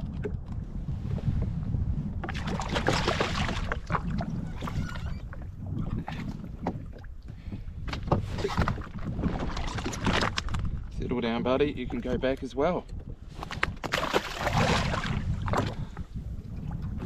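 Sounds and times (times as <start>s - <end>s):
wind rumbling on microphone: 0.0s - 17.0s
splashing and rustling: 2.2s - 6.8s, 7.9s - 10.8s, 13.4s - 15.9s.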